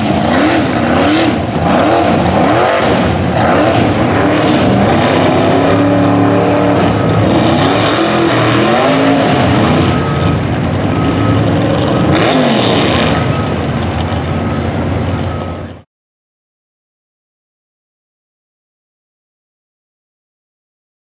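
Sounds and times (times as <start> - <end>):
truck engine revving hard: 0.0 - 15.8.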